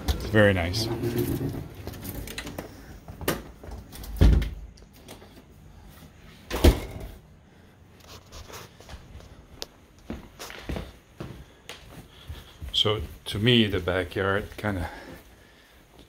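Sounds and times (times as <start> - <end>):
door thumping shut: 4.1 - 4.6.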